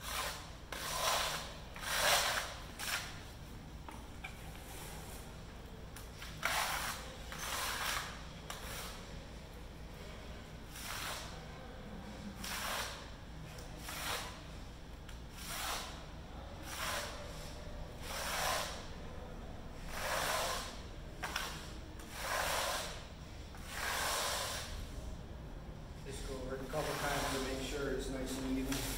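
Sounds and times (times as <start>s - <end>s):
trowel scraping on metal plate: 0.0s - 3.1s, 6.3s - 8.9s, 22.1s - 23.0s, 26.7s - 27.6s.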